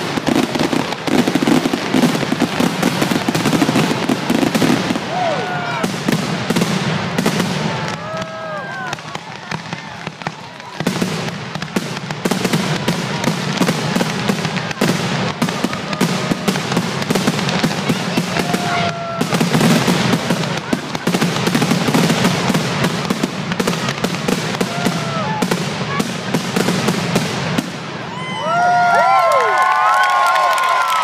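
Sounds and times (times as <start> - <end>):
fireworks whistling: 0.0 - 29.2
fireworks booming and crackling: 0.0 - 29.9.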